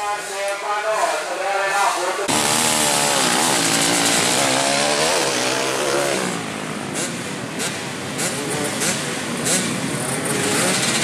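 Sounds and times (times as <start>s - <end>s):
two-stroke dirt bike engine revving: 2.3s - 11.0s.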